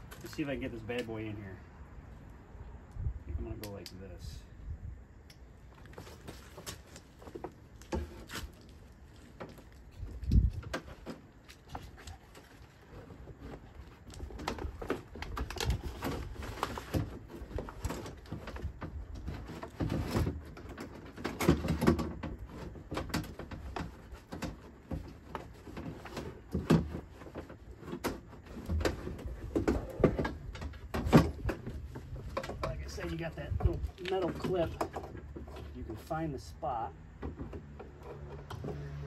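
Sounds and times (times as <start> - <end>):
rustling: 5.6 - 36.5.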